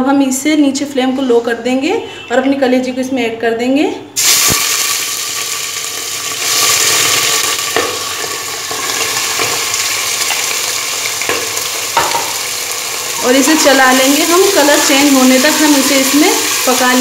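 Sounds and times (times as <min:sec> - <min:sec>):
liver sizzling in hot oil: 0:04.2 - 0:17.0
dish knocking against pot: 0:11.3 - 0:12.4.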